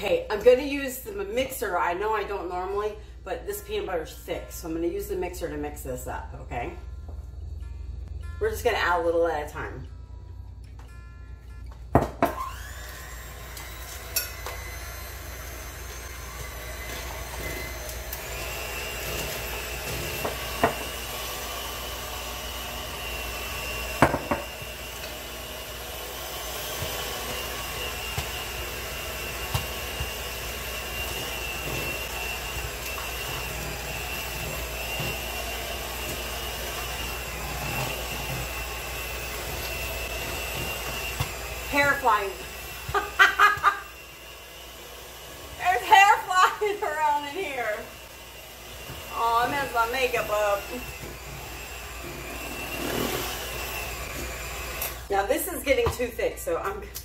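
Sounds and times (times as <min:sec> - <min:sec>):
electric hand mixer running: 0:12.0 - 0:57.0.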